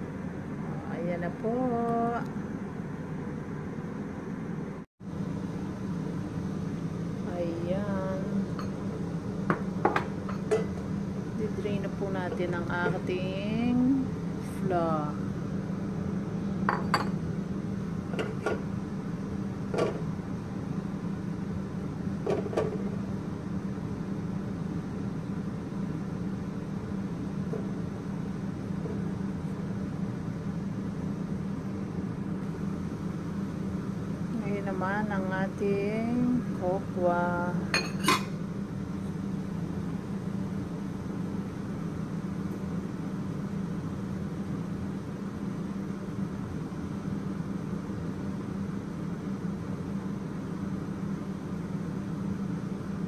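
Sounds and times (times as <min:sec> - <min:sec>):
low machine hum: 0:00.0 - 0:53.0.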